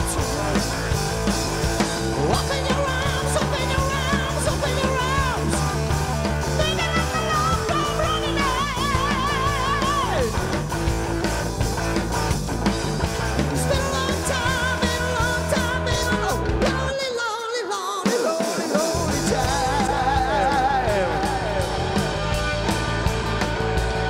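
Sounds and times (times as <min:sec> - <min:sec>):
man singing: 0:00.0 - 0:01.0, 0:01.8 - 0:10.5, 0:13.4 - 0:22.5
live rock band playing: 0:00.0 - 0:24.0.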